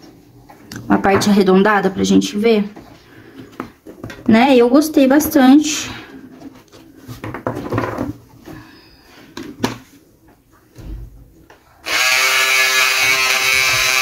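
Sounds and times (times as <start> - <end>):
blade cutting fabric: 11.8 - 14.0
electric scissors whirring: 11.8 - 14.0.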